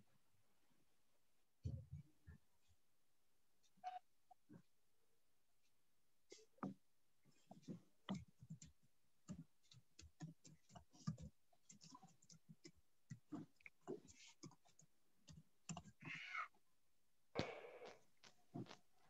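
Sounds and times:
faint clicks and taps: 0:05.6 - 0:16.1.

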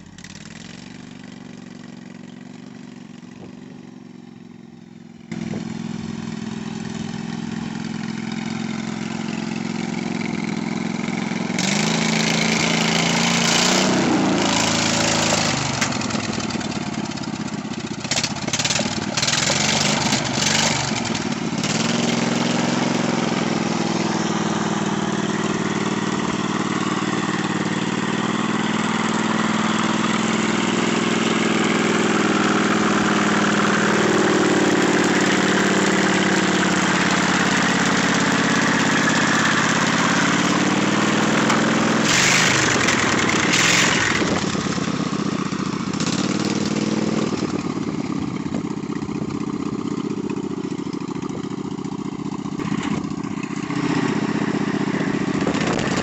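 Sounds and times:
riding lawn mower engine: 0:00.0 - 0:56.0.

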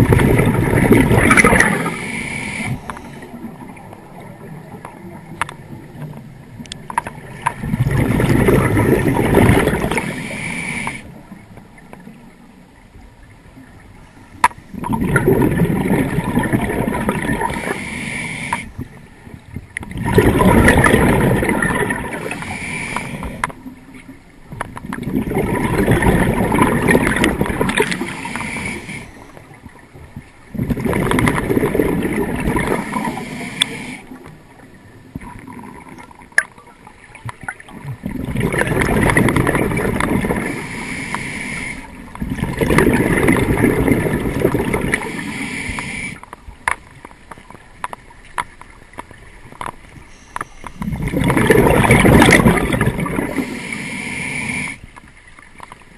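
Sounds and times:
exhaled bubbles rumbling underwater: 0:00.0 - 0:55.9
diver inhaling through regulator: 0:01.4 - 0:03.4, 0:09.7 - 0:11.1, 0:17.3 - 0:18.8, 0:22.1 - 0:23.5, 0:27.8 - 0:29.4, 0:32.6 - 0:34.2, 0:40.4 - 0:42.0, 0:44.7 - 0:46.2, 0:53.0 - 0:54.9.

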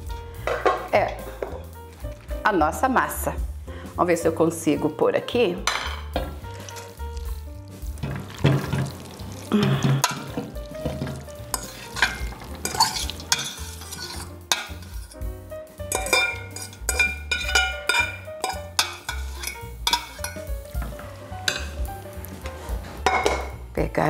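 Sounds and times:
utensil scraping metal pot: 0:05.7 - 0:15.3, 0:15.9 - 0:23.6
wet pasta squelching: 0:06.3 - 0:15.2.

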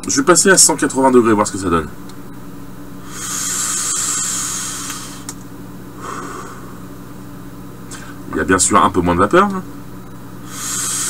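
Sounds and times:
breathy exhale: 0:03.0 - 0:05.4, 0:06.0 - 0:06.9, 0:07.9 - 0:08.2, 0:10.4 - 0:11.0
e-cigarette airy hiss: 0:03.0 - 0:06.9, 0:10.2 - 0:11.0.

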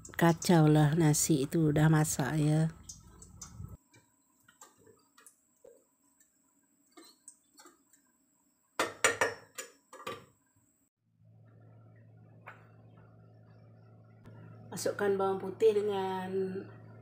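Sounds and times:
steady low hum: 0:11.1 - 0:17.0.

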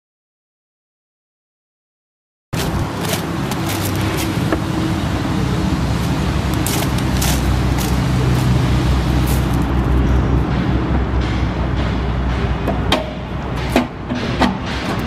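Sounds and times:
footsteps on gravel: 0:02.6 - 0:04.8, 0:06.0 - 0:10.0
diesel truck engine idling: 0:02.6 - 0:10.5.

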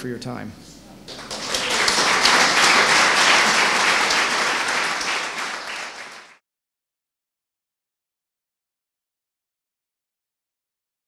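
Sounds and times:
audience applauding: 0:01.1 - 0:06.4.

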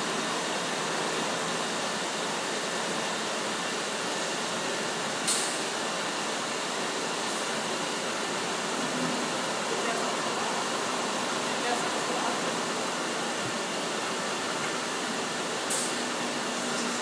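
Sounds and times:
industrial machines running: 0:00.0 - 0:17.0
sharp click: 0:05.3 - 0:05.6.

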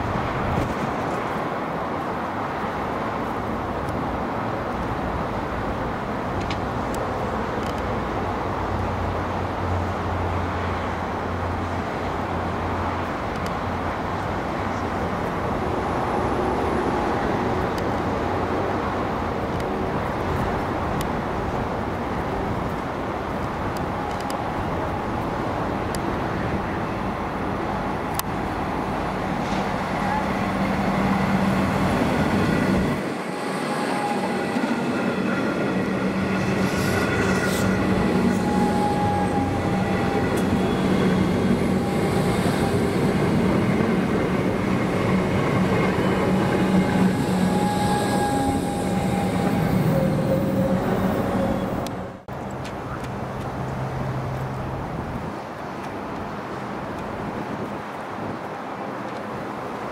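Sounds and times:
road traffic rumble: 0:00.0 - 0:59.9
electric train approaching: 0:20.6 - 0:52.3.

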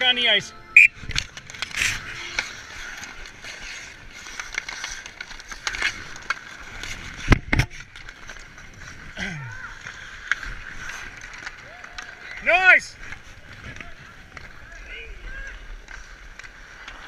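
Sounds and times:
hockey sticks and puck clacking: 0:00.0 - 0:17.0
ice skates scraping: 0:01.0 - 0:17.0.

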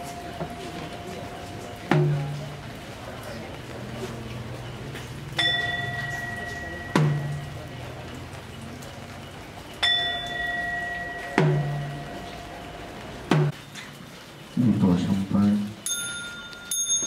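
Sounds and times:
deep percussion stroke: 0:00.0 - 0:02.8, 0:09.8 - 0:13.6
metal bell ringing: 0:05.4 - 0:07.7, 0:09.8 - 0:13.3, 0:15.8 - 0:17.0.

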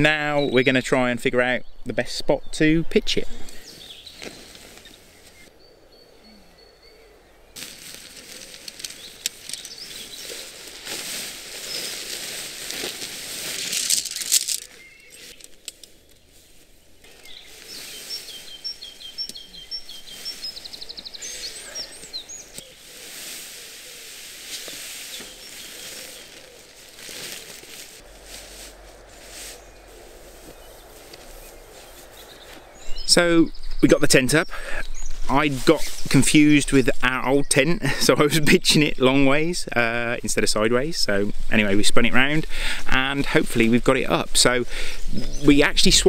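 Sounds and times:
small birds chirping: 0:00.0 - 0:46.0
tent fabric and poles rustling: 0:03.3 - 0:05.5, 0:07.6 - 0:34.2, 0:34.9 - 0:36.7.

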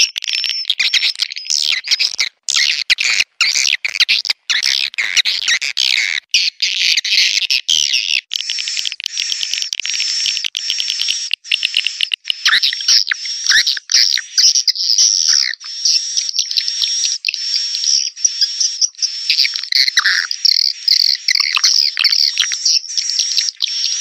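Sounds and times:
swiftlets chirping and twittering: 0:07.8 - 0:24.0.

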